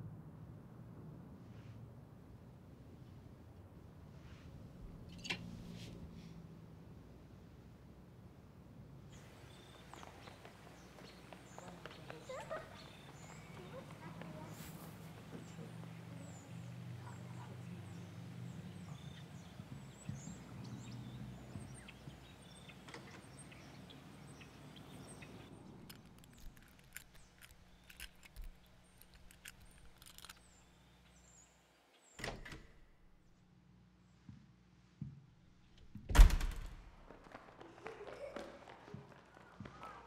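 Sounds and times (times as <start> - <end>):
birds chirping: 9.1 - 32.2
wooden door opening: 32.2 - 32.9, 35.8 - 36.9.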